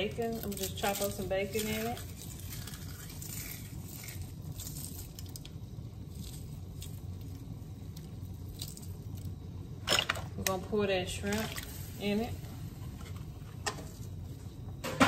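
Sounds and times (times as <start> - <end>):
bacon crackles and pattering: 0.0 - 10.5
steady low hum: 0.0 - 15.0.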